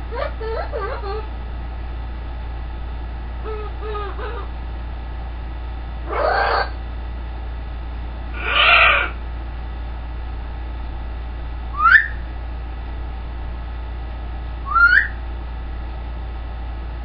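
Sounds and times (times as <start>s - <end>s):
macaw hoarse call: 3.4s - 4.5s, 6.1s - 6.8s, 8.4s - 9.2s, 11.8s - 12.2s, 14.7s - 15.2s.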